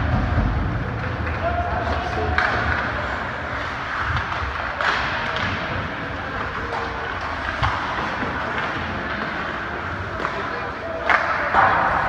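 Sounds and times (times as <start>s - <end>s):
arena crowd din: 0.0s - 12.0s.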